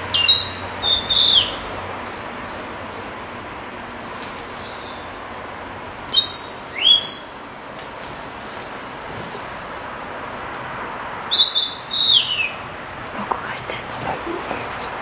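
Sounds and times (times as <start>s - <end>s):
bird singing whistled notes: 0.1s - 3.2s, 6.1s - 10.0s, 11.3s - 12.6s.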